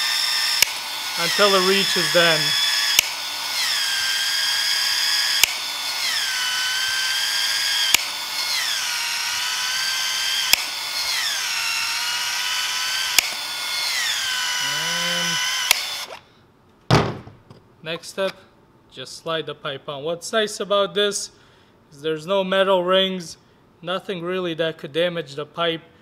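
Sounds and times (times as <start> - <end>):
expansion tool motor whine: 0.0 - 16.2
sharp tool click: 0.6 - 0.8, 2.9 - 3.2, 5.4 - 5.6, 7.9 - 8.1, 10.5 - 10.7, 13.1 - 13.4, 15.7 - 16.2.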